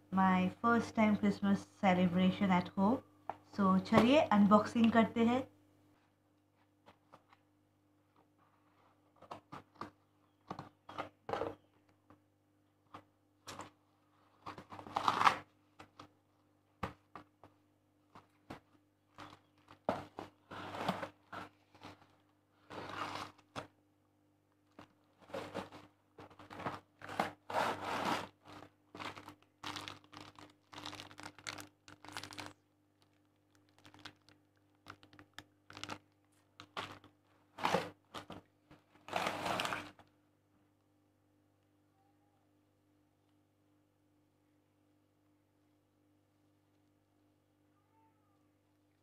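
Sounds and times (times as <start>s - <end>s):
cardboard tearing: 14.5s - 15.5s, 22.6s - 23.6s, 25.2s - 32.6s, 33.7s - 36.0s, 39.0s - 40.0s
plastic crinkling: 24.6s - 40.1s.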